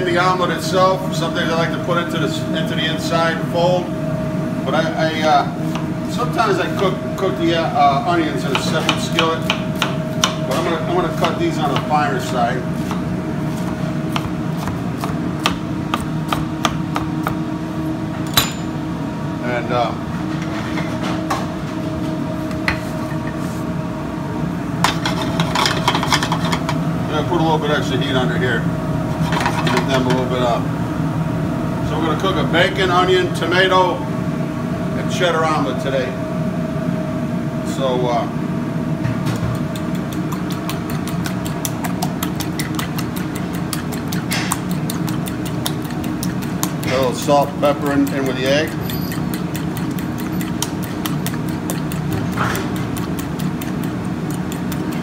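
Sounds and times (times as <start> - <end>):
low background hum: 0.0 - 55.0
knife chopping on cutting board: 8.4 - 12.0, 12.8 - 17.4, 39.3 - 55.0
fork beating eggs in a bowl: 39.5 - 55.0.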